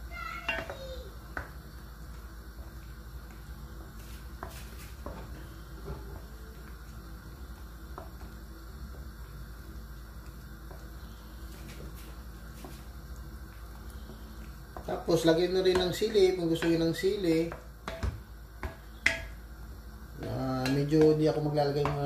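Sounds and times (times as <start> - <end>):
steady low hum: 0.0 - 22.0
spoon knocking against pot: 15.7 - 19.4, 20.2 - 22.0.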